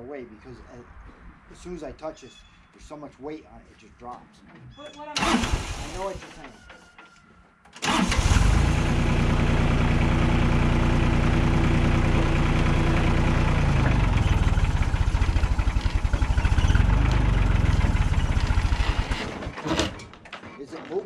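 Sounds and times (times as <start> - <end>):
tractor diesel engine running hard: 7.8 - 19.5.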